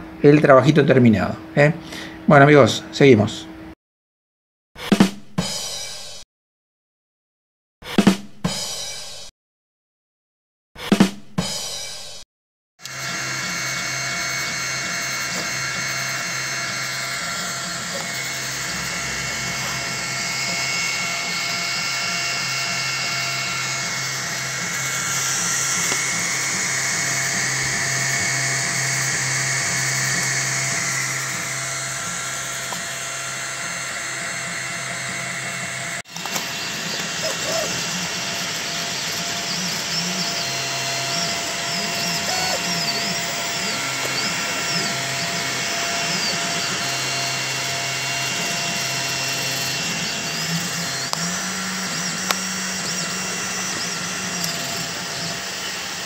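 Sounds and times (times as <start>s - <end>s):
stepper motors whining: 12.8s - 56.0s
cooling fans humming: 12.9s - 56.0s.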